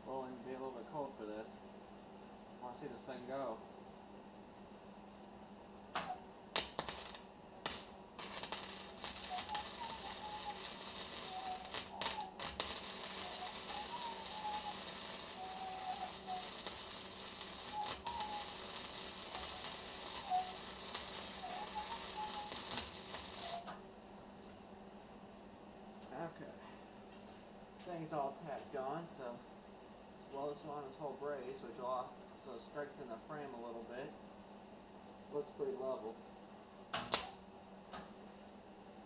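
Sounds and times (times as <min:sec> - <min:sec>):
arc welding crackle: 0:05.9 - 0:23.8, 0:36.9 - 0:37.4.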